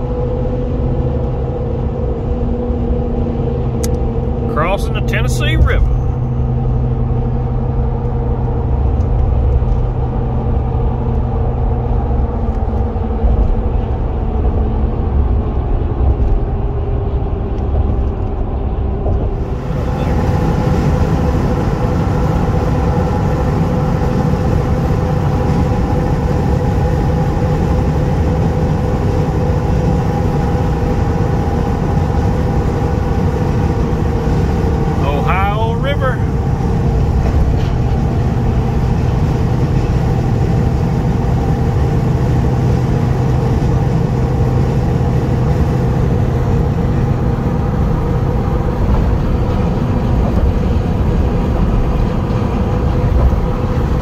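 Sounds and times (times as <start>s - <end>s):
engine and tyre drone in car cabin: 0.0s - 54.0s.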